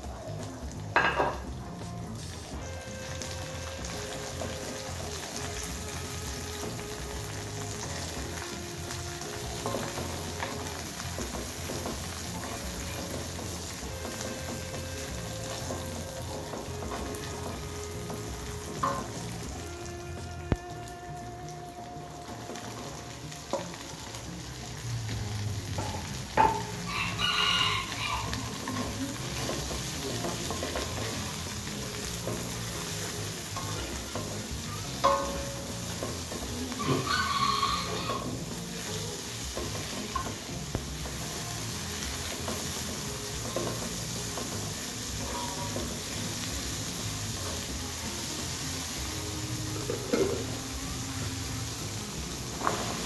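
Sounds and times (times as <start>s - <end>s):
vegetables sizzling in hot oil: 0.0s - 53.0s
rooster crowing: 26.8s - 28.6s, 36.8s - 38.4s.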